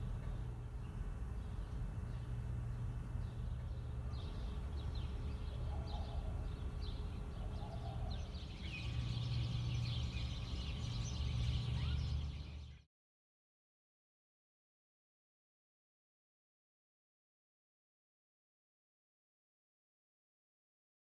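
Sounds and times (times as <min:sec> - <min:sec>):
small birds chirping: 0:00.0 - 0:12.9.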